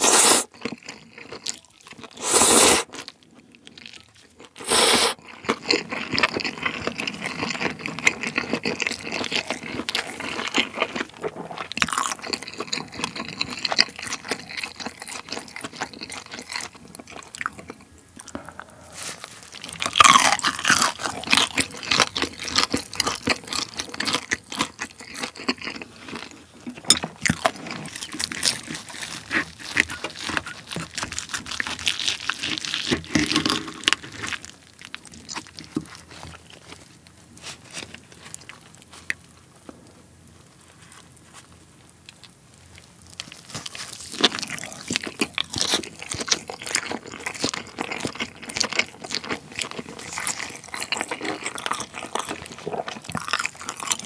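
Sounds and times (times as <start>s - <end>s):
slurping noodles: 0.0s - 0.6s, 2.1s - 3.0s, 4.6s - 5.2s
chewing and crunching crispy skin: 0.0s - 54.0s.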